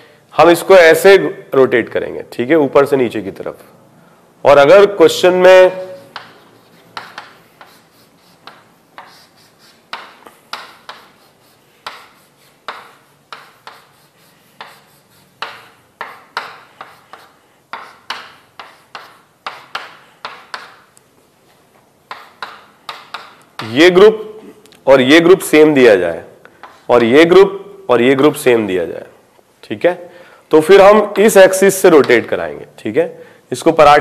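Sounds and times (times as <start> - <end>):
pen taps and strokes writing: 6.0 - 21.0, 22.0 - 23.7.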